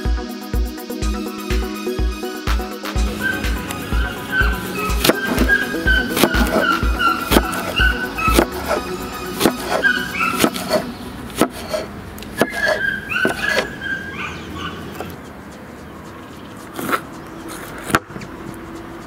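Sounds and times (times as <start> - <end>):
high chirp-like animal calls: 3.1 - 17.6.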